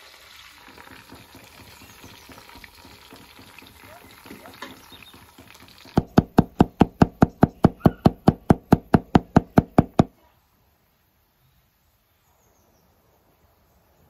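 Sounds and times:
knife chopping on wooden board: 6.0s - 10.1s.

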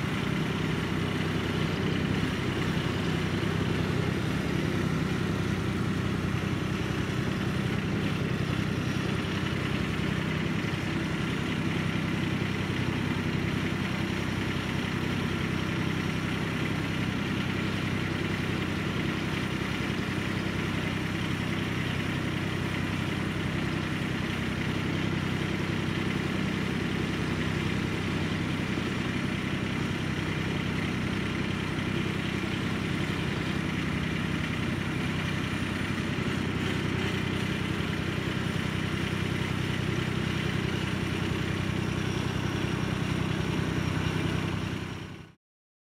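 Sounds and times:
garden tractor engine running: 0.0s - 45.4s.

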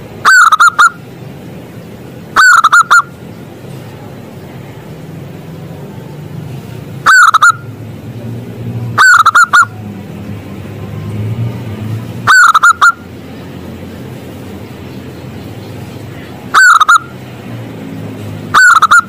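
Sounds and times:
dove cooing: 0.2s - 1.0s, 2.4s - 3.1s, 7.0s - 7.6s, 9.0s - 9.7s, 12.3s - 13.0s, 16.5s - 17.1s, 18.5s - 19.0s.

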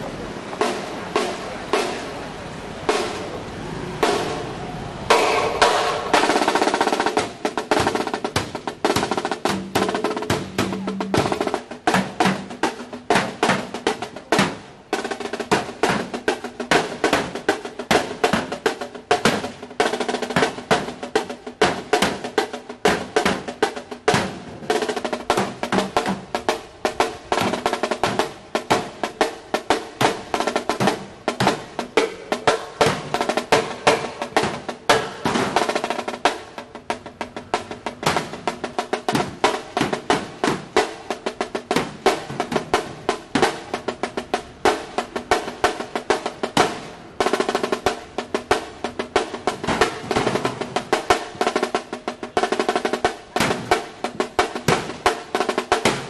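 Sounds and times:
marching snare drum rolls: 0.5s - 2.2s, 2.8s - 56.0s
baseball bat striking steel cabinet: 5.1s - 6.3s.

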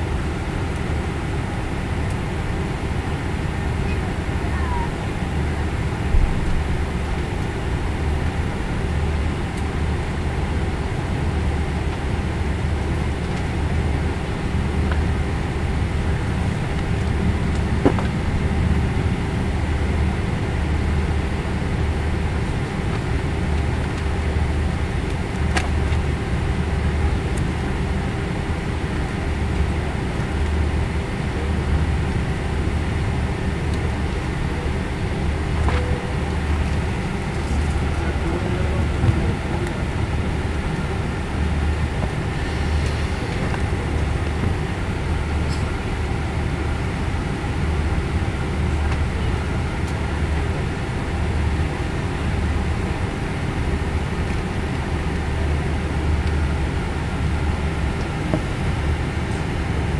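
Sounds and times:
jet engines low rumble: 0.0s - 59.9s
steady cabin hum: 0.0s - 59.9s.

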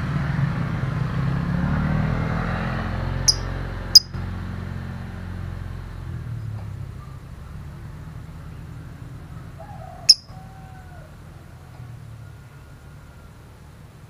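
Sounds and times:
bird chirp: 3.3s - 4.2s, 10.0s - 10.4s.

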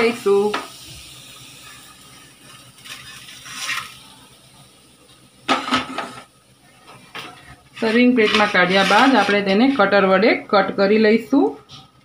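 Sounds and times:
food scraping out of pan: 2.8s - 4.0s, 7.2s - 10.0s
frying pan clatter: 5.4s - 6.3s.

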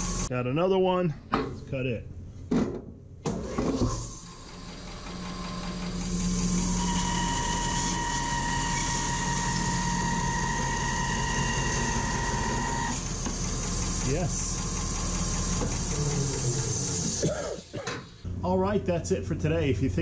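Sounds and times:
bandsaw cutting wood whine: 0.0s - 0.3s, 4.2s - 17.3s.

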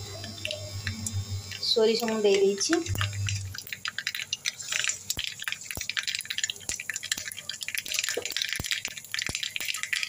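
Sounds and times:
seeds sizzling and popping in oil: 0.0s - 10.0s.

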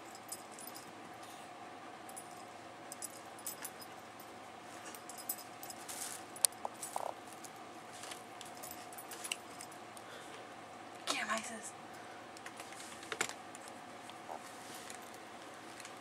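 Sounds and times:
faint steady hum: 0.0s - 16.0s
collar tag jingling: 2.1s - 7.1s, 8.5s - 9.8s
cats scuffling on carpet: 14.2s - 16.0s.

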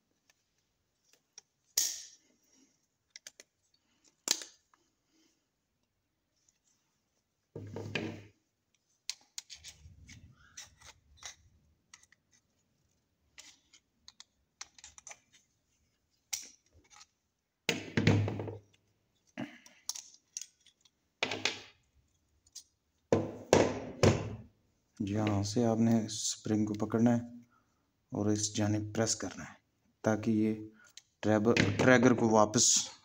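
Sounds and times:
metal clicks of pistol parts: 1.4s - 2.3s, 3.0s - 4.7s, 16.3s - 17.1s, 19.6s - 21.0s.

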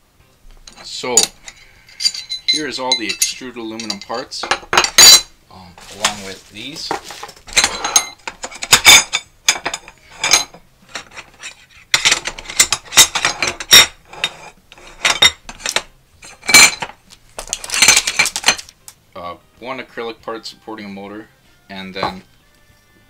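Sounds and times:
aluminium bars clattering: 0.6s - 18.8s.

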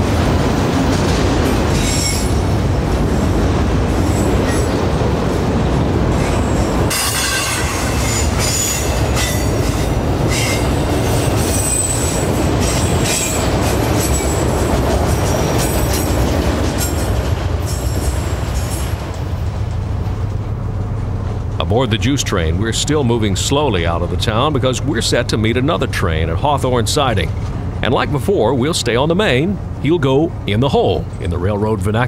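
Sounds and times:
low train rumble: 0.0s - 32.0s
train wheels squealing: 1.8s - 2.4s, 6.2s - 14.4s.

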